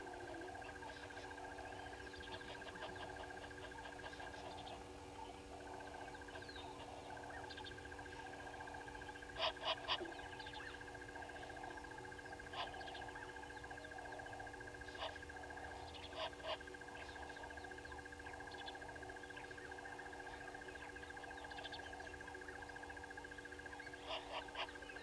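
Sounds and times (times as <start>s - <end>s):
background bird chorus: 0.0s - 25.0s
parrots calling: 0.9s - 4.8s.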